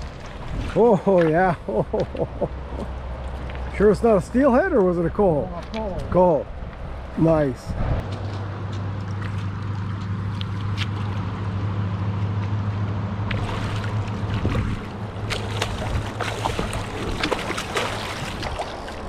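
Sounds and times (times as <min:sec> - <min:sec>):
water sloshing and gurgling: 0:00.0 - 0:07.2, 0:08.8 - 0:11.6, 0:13.2 - 0:19.0
fish splashing at water surface: 0:13.3 - 0:19.0.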